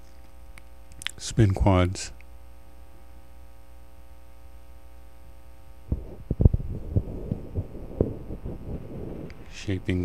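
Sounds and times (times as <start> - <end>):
electrical mains hum: 0.0 - 10.0
low thumps and knocks: 5.9 - 9.4.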